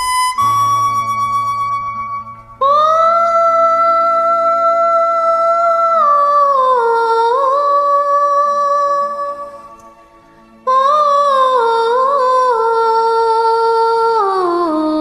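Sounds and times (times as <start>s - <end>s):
karaoke backing track: 0.0s - 15.0s.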